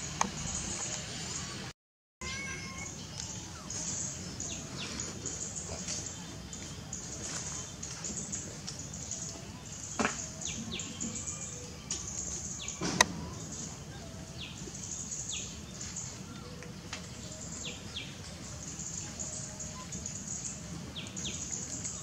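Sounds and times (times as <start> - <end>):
steady high hiss: 0.0 - 1.7
birds chirping: 0.0 - 22.0.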